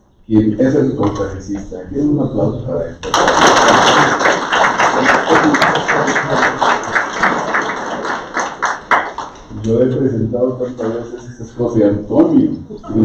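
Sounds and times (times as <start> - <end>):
audience applauding: 3.0 - 9.5.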